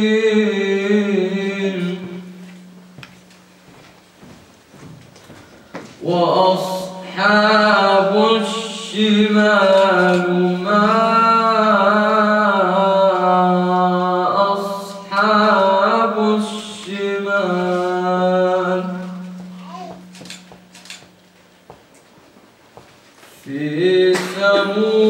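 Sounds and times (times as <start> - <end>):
man chanting melodic recitation: 0.0 - 2.5, 6.0 - 20.0, 23.4 - 25.0.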